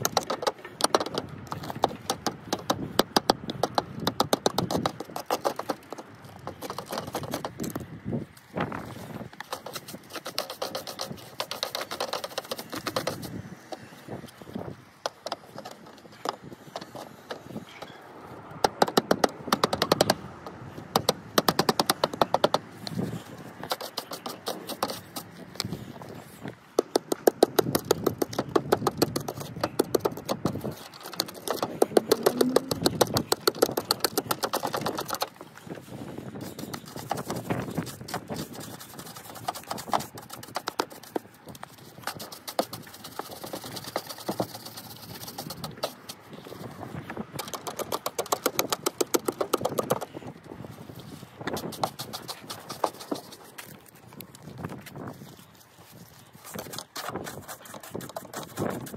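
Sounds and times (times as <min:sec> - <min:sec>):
mortar scraping from brick joint: 0:21.5 - 0:50.3, 0:50.9 - 0:58.9.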